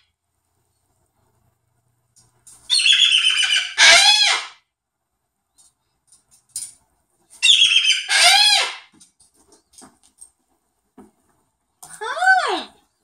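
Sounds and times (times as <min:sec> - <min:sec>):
cockatoo calling loudly: 0:02.7 - 0:04.6, 0:07.4 - 0:08.9.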